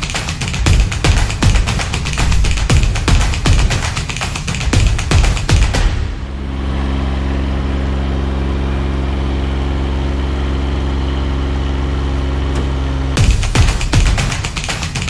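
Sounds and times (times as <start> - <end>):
engine humming steadily: 4.7 - 14.4.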